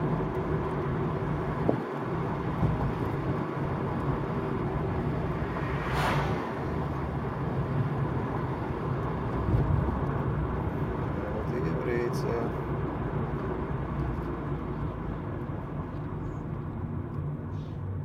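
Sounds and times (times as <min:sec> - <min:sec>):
car engine running: 0:00.0 - 0:17.4
wind rushing: 0:05.0 - 0:07.4
loud whoosh: 0:05.2 - 0:07.1.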